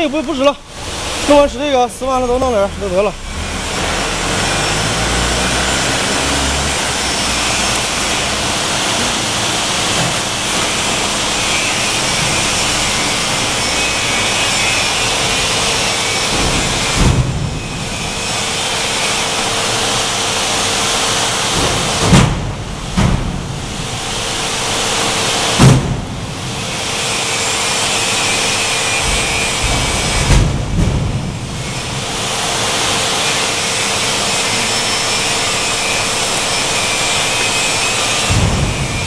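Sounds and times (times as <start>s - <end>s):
loud steady rushing noise: 0.0s - 39.0s.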